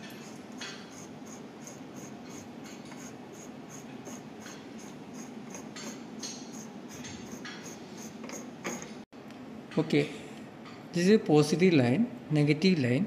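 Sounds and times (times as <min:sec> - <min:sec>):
metal threads rasping: 0:00.0 - 0:09.1.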